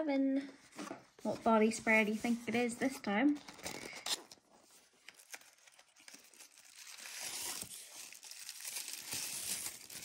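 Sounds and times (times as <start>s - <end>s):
tissue paper crinkling: 3.5s - 10.0s.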